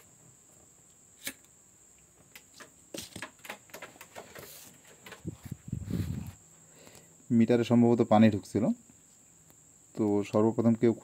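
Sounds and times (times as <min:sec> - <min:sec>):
faint high-pitched whine: 0:00.0 - 0:11.0
hands handling wires and circuit board: 0:02.2 - 0:05.7.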